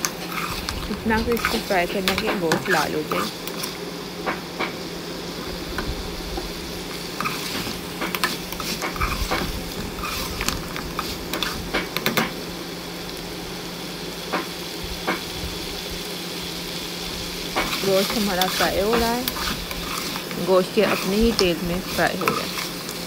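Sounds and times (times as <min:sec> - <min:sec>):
meat sizzling in pot: 0:00.0 - 0:23.0
metal spoon scraping pot: 0:00.3 - 0:03.7, 0:18.3 - 0:22.7.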